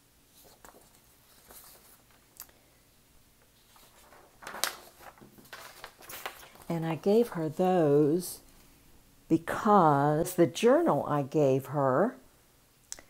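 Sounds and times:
paper rustling: 0.3 - 2.4, 3.4 - 7.6.

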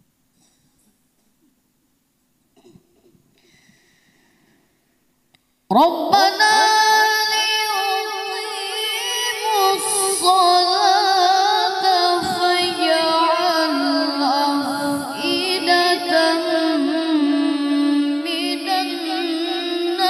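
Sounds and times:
boy reciting melodically: 5.7 - 20.0.

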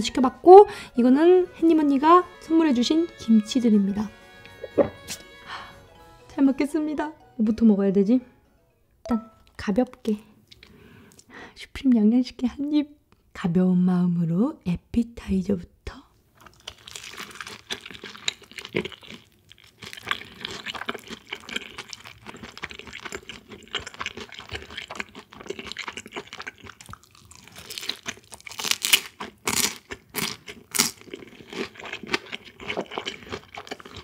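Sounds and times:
chewing and crunching fried chicken: 16.4 - 34.0.

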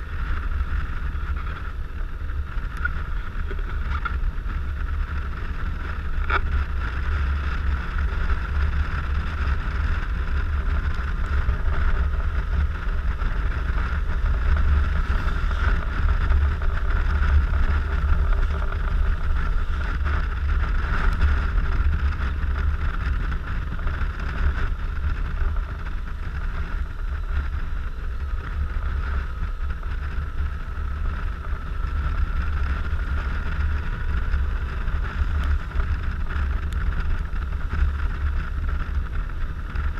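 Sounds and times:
scooter engine running: 0.0 - 39.9
wind buffeting microphone: 0.0 - 39.9.

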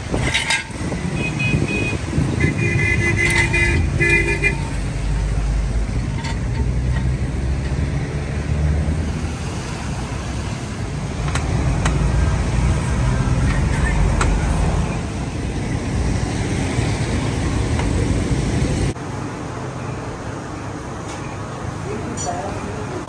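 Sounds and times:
low traffic rumble: 0.0 - 23.0
vehicle horns honking: 0.2 - 4.9.

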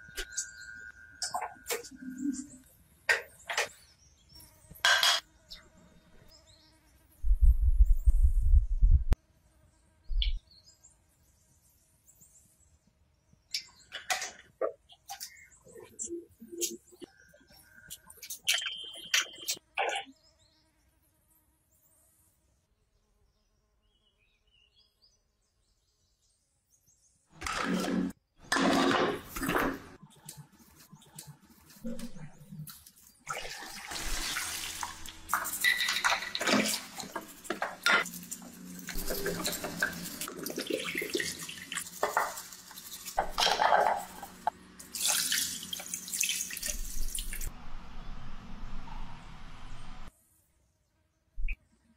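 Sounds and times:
water pouring over metal parts: 33.3 - 47.5
metal castings clicking and knocking: 35.3 - 44.5.

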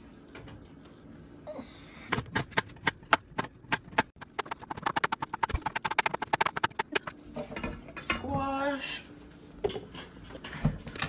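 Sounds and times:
knife chopping vegetables: 2.1 - 7.1.

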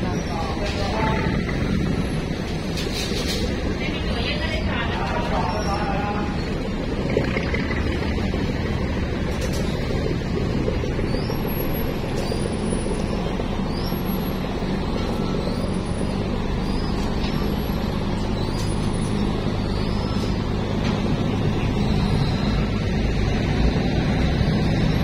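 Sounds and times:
water rushing past hull: 0.0 - 18.2
boat engine drone: 0.0 - 25.0.

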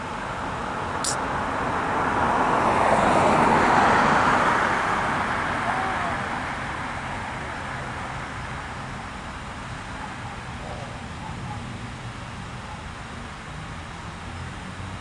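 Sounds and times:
vehicle passing by: 1.0 - 8.9.

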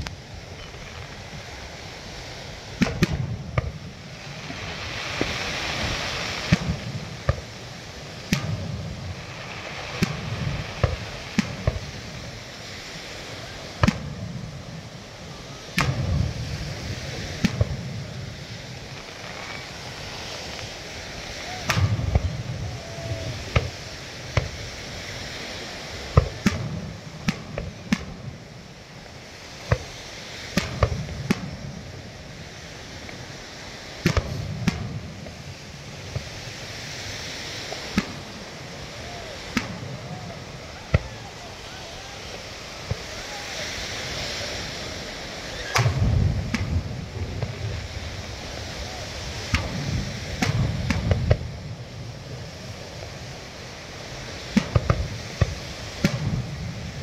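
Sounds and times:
fireworks bangs and cracks: 0.0 - 57.0
surf washing: 0.0 - 57.0
deep rumbling booms: 21.4 - 24.6, 45.7 - 52.4.

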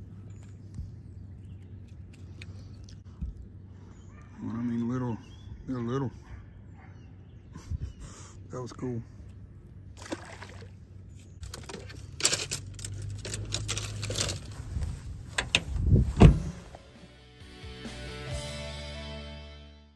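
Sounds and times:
fishing gear clattering: 11.4 - 14.6
heavy thump: 16.1 - 16.8.

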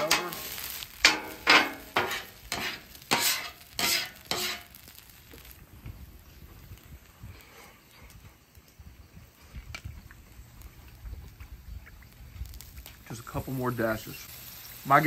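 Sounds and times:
metal spatulas scraping griddle: 0.0 - 4.8.

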